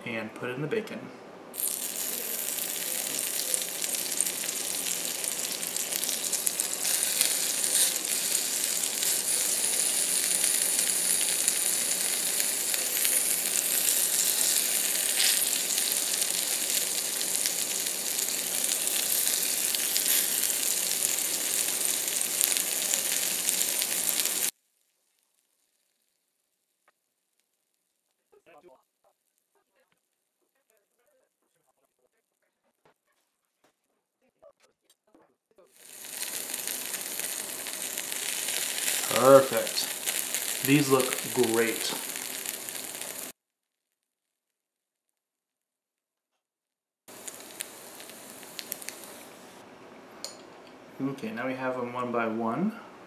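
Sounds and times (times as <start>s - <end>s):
bacon sizzling in skillet: 1.6s - 26.6s, 35.8s - 43.4s, 47.1s - 49.6s.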